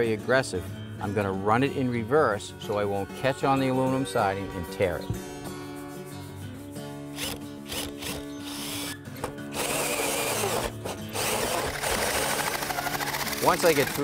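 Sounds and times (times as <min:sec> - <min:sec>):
drill motor spurts: 0:07.2 - 0:14.0
hole saw scraping siding: 0:07.2 - 0:14.0.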